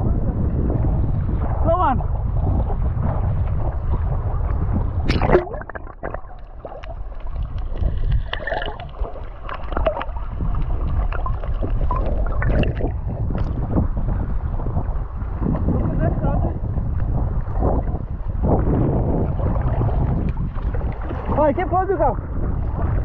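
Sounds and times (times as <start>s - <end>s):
underwater gurgling: 2.4s - 21.5s
water sloshing and slapping: 2.6s - 16.2s, 16.8s - 23.0s
water splashing: 5.0s - 14.0s, 19.1s - 21.8s.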